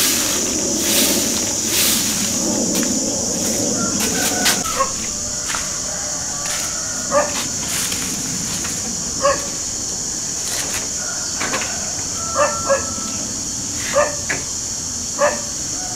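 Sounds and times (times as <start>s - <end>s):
steady high-pitched hiss: 0.0s - 15.9s
dog barking: 4.6s - 5.0s, 7.1s - 7.4s, 9.2s - 9.6s, 12.3s - 13.0s, 13.9s - 14.3s, 15.2s - 15.5s.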